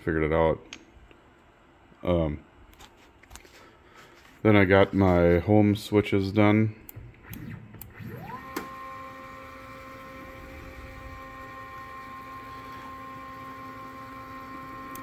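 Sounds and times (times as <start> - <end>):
stepper motors whining: 7.0 - 15.0.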